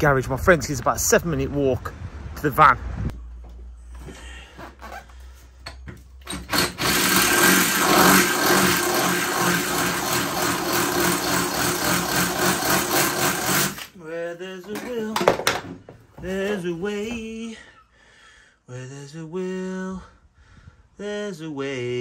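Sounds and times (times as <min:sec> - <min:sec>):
cordless drill boring through metal: 0:06.2 - 0:14.0.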